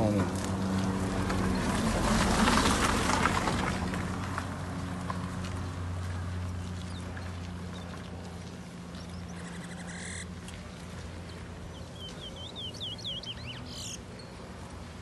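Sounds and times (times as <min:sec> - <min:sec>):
songbird singing: 0:06.4 - 0:14.8.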